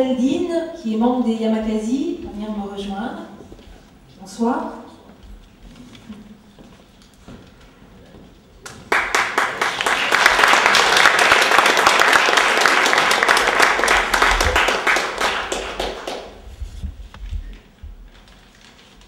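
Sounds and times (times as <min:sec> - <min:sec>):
audience applauding: 0:08.7 - 0:16.4.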